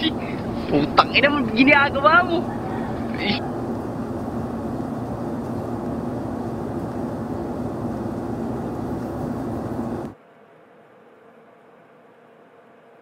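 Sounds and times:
droning rush with low hum: 0.0s - 10.2s.

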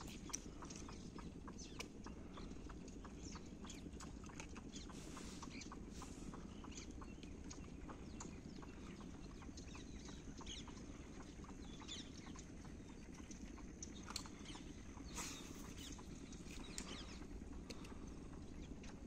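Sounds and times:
light ticks: 0.0s - 15.0s, 15.7s - 19.0s
small birds chirping: 0.0s - 19.0s.

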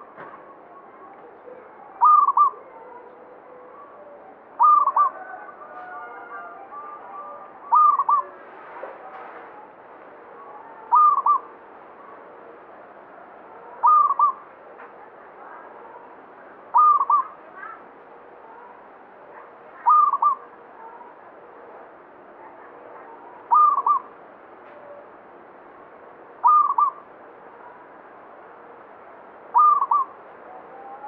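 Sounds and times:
dove cooing: 1.4s - 3.1s, 4.6s - 6.0s, 7.7s - 8.3s, 10.9s - 11.5s, 13.8s - 14.4s, 16.7s - 17.8s, 19.8s - 20.5s, 23.4s - 24.1s, 26.4s - 27.0s, 29.5s - 31.0s.

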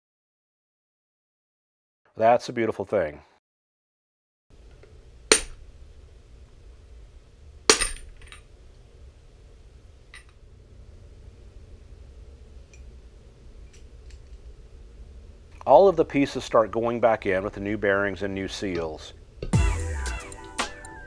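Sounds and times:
low steady hum: 4.5s - 21.0s.

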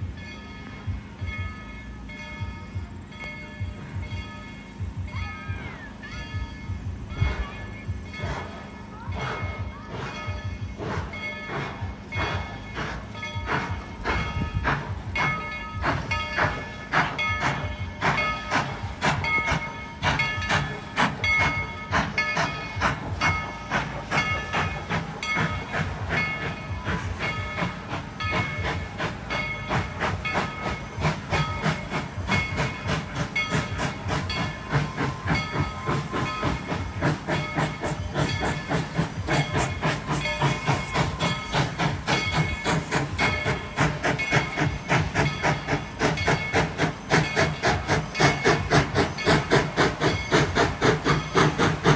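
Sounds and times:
steam hissing: 0.0s - 51.9s
train wheels clattering: 0.0s - 51.9s.

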